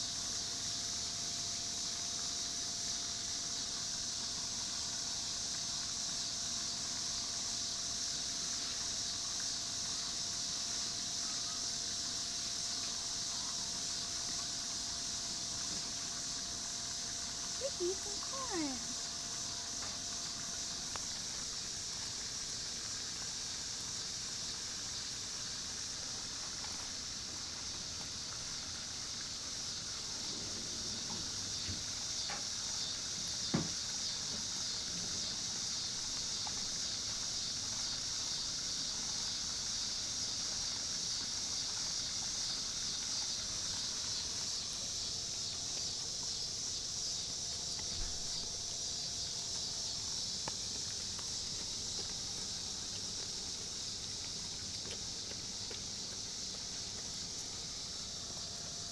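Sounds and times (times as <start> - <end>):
steady high hiss: 0.0 - 58.9
dog crunching corn kernels: 45.3 - 58.7.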